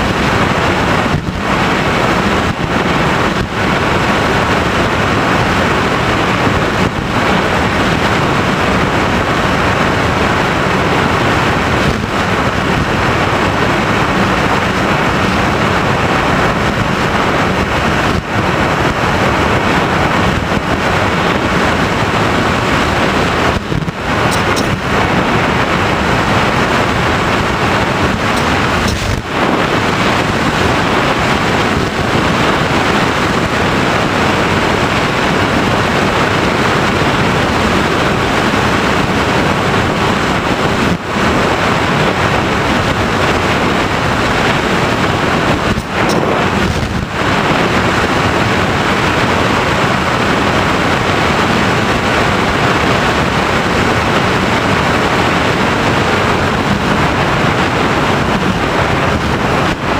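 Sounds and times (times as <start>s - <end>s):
rushing wind noise: 0.0s - 59.9s.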